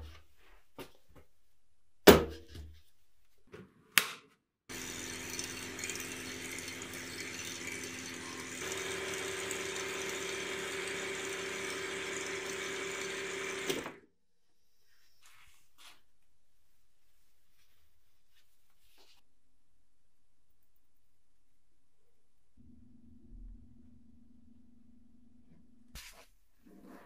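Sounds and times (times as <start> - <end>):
electric power tool motor: 4.7 - 14.0.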